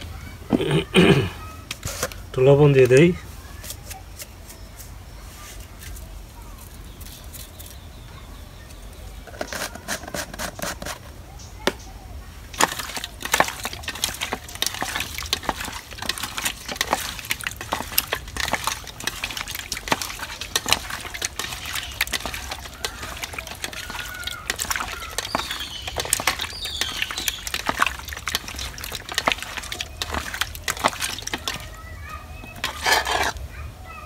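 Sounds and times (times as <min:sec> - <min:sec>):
wet fish squelching in metal bowl: 0:12.5 - 0:33.5.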